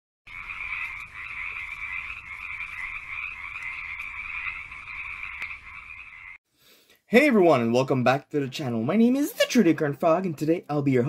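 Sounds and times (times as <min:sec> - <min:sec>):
frogs calling: 0:00.3 - 0:06.4.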